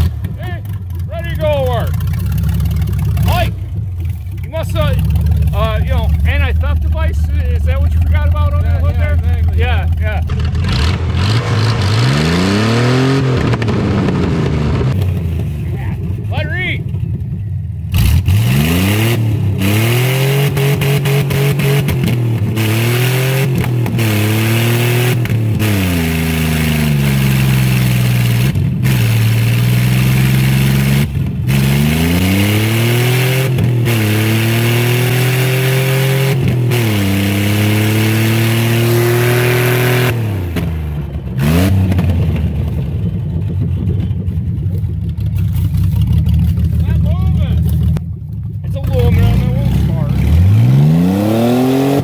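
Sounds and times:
tire spinning in place: 0:00.0 - 0:52.0
engine revving hard: 0:04.5 - 0:15.2, 0:17.9 - 0:42.5, 0:48.8 - 0:52.0.

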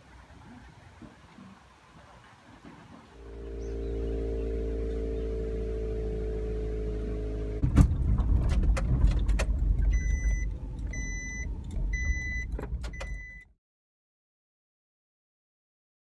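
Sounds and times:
van driving on bumpy track: 0:03.0 - 0:13.4
rattles from bumps: 0:07.6 - 0:11.0
warning beep: 0:09.9 - 0:13.4.

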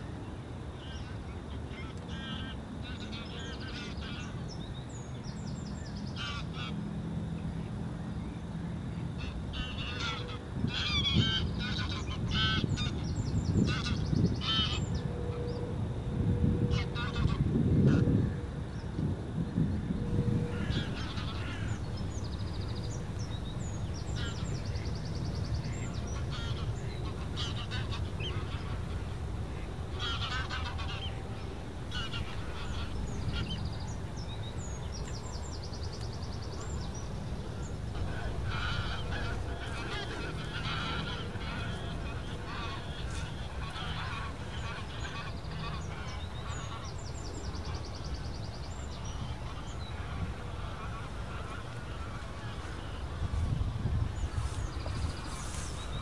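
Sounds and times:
geese honking: 0:13.7 - 0:14.8, 0:20.1 - 0:56.0
low rumble: 0:20.0 - 0:56.0.

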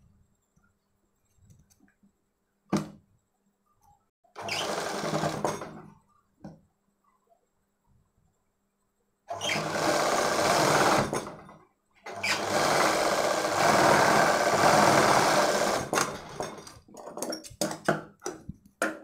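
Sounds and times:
sewing machine stitching: 0:04.4 - 0:05.9, 0:09.3 - 0:16.8.

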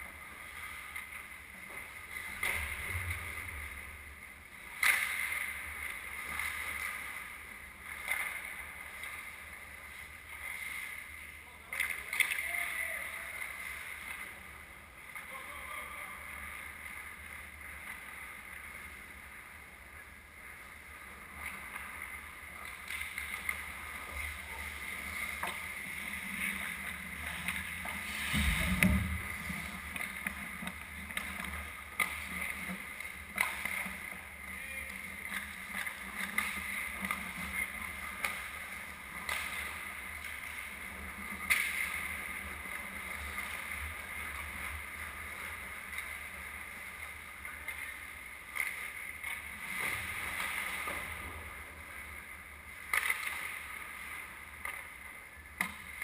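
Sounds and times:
skates scraping on ice: 0:00.0 - 0:56.0
sticks and puck clacking: 0:04.5 - 0:56.0
heavy thud: 0:28.3 - 0:29.3.

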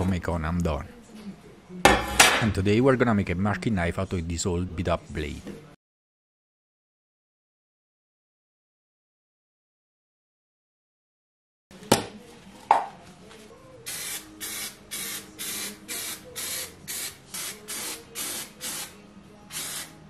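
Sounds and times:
aerosol spray can hissing: 0:13.9 - 0:18.9, 0:19.5 - 0:20.0.

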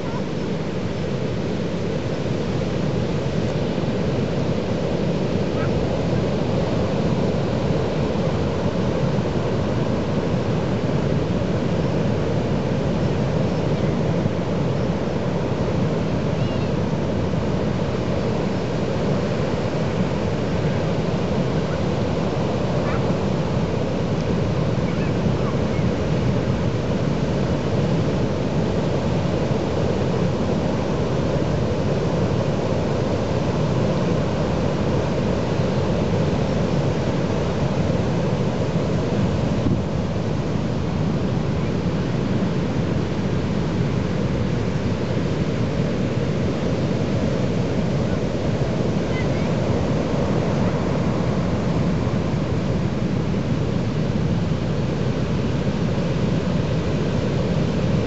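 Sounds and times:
heavy surf breaking on beach: 0:00.0 - 0:58.0.

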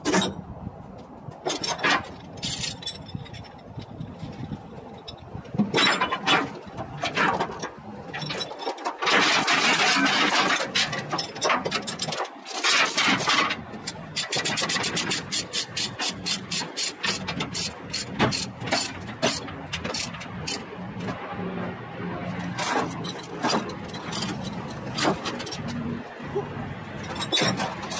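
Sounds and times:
chains rattling over trailer deck: 0:00.0 - 0:00.6, 0:01.2 - 0:21.2, 0:22.2 - 0:27.9
ratchet load binder clicking: 0:08.9 - 0:20.7.

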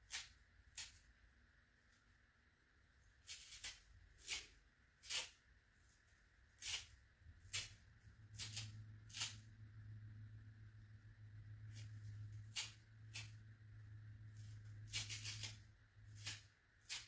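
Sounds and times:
jelly sponge ripping: 0:03.2 - 0:05.4, 0:14.4 - 0:17.0.

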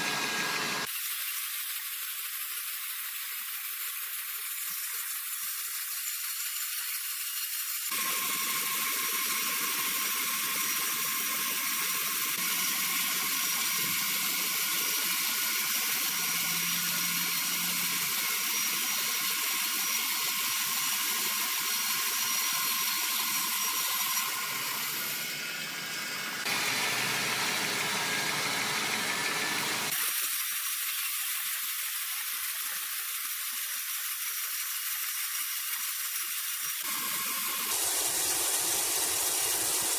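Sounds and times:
band saw cutting log: 0:00.0 - 0:01.0, 0:07.9 - 0:30.3
high whining saw blade: 0:03.2 - 0:33.5
deep machine running noise: 0:25.2 - 0:29.9.

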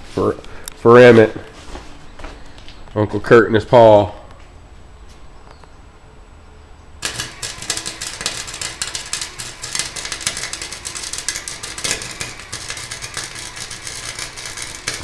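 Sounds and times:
arc welder crackling: 0:07.0 - 0:15.0.

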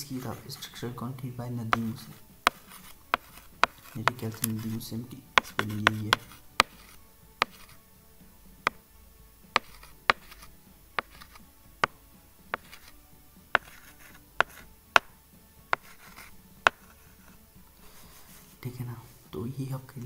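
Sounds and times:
pen tip tapping on touchscreen: 0:01.7 - 0:04.6, 0:05.4 - 0:07.8, 0:09.6 - 0:12.0, 0:12.6 - 0:12.9, 0:13.6 - 0:16.9.

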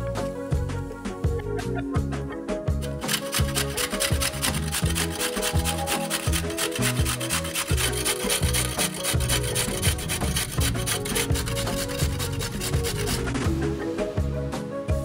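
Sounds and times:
background music: 0:00.0 - 0:15.0
carrot grating on metal grater: 0:02.8 - 0:13.5.

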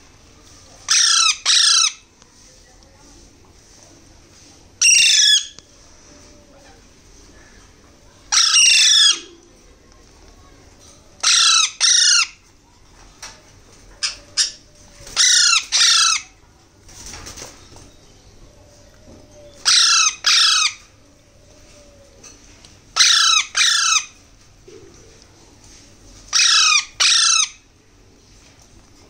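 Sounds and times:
parakeet chicks squawking: 0:00.9 - 0:02.0, 0:04.8 - 0:05.6, 0:08.3 - 0:09.3, 0:11.2 - 0:12.4, 0:14.0 - 0:16.3, 0:19.6 - 0:20.8, 0:23.0 - 0:24.2, 0:26.3 - 0:27.6.

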